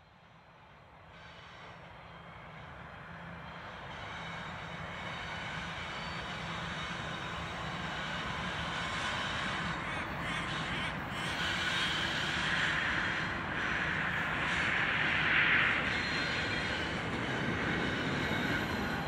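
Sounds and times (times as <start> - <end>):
locomotive engines droning: 0.0 - 19.0.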